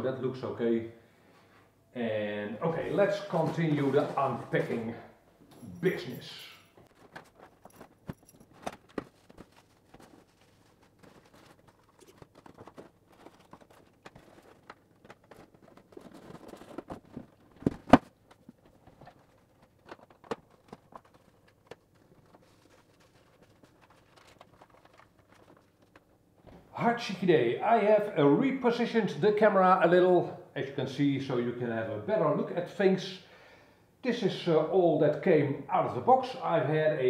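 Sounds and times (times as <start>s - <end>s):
styrofoam knocks and rustles: 6.9s - 26.1s.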